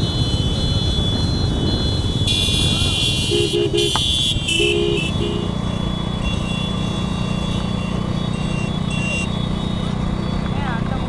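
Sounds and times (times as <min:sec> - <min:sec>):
vehicle horn blasts: 0:00.0 - 0:05.6, 0:06.2 - 0:09.4
engine hum: 0:00.0 - 0:11.0
traffic noise: 0:00.0 - 0:11.0.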